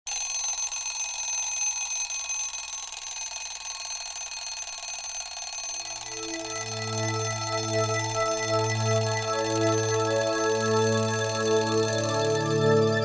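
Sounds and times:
alarm ringing: 0.1s - 13.0s
music with low sustained notes: 6.1s - 13.0s.

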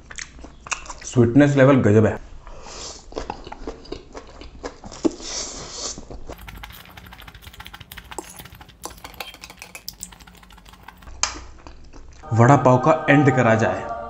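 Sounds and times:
man chewing noodles: 3.1s - 5.3s, 6.3s - 12.1s
noodle slurp: 6.4s - 11.1s.

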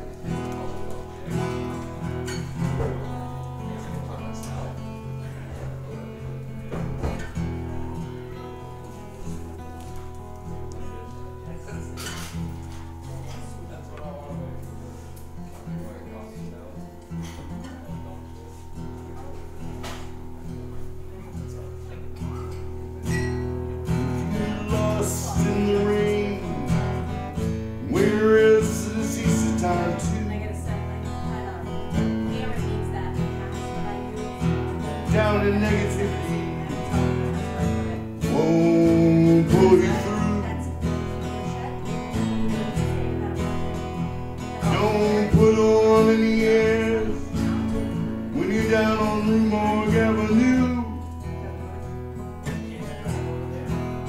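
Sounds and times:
strummed guitar chords: 0.0s - 54.0s
person singing: 24.2s - 27.0s, 27.8s - 30.6s, 38.2s - 40.9s, 44.4s - 47.5s.

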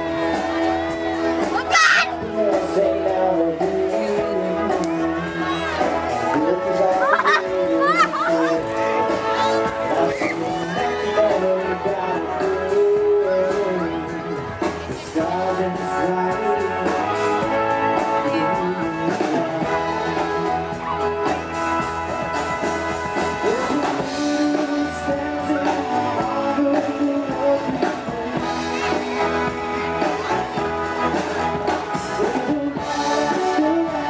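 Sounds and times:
wind band playing: 3.9s - 34.0s
steady drum beat: 14.6s - 34.0s.

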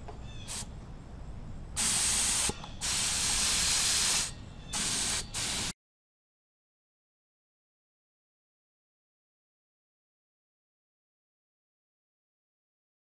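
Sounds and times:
paint spray gun hissing: 0.4s - 0.7s, 1.8s - 5.8s.

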